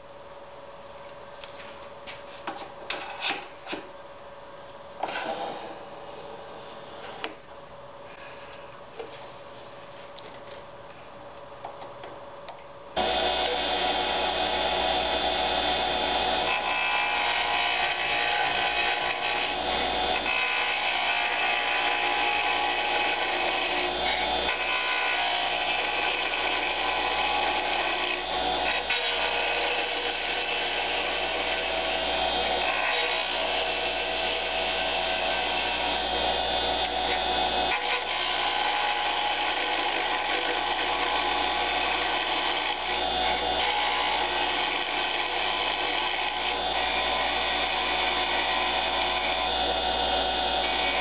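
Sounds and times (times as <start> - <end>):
turning tool cutting wood: 13.0 - 51.0
wood lathe motor hum: 13.0 - 51.0.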